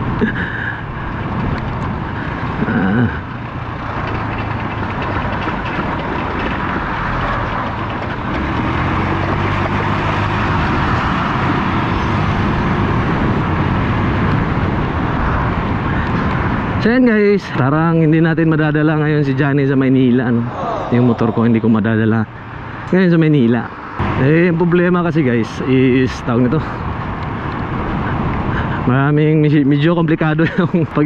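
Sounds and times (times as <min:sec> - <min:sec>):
wind noise: 0:00.0 - 0:23.0
trucks passing: 0:00.0 - 0:31.0
scooter engine running: 0:00.9 - 0:13.6
low drone: 0:20.0 - 0:23.0.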